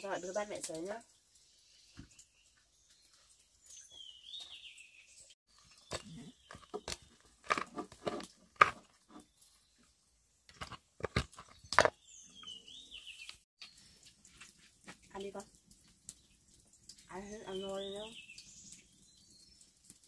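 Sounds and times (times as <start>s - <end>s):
bird chirping: 1.4s - 7.8s, 11.4s - 14.1s, 17.1s - 19.8s.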